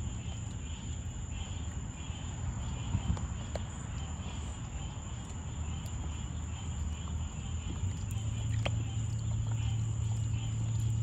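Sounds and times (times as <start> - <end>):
crickets trilling: 0.0 - 11.0
low steady hum: 0.0 - 11.0
faint clicks and splashes: 5.2 - 11.0.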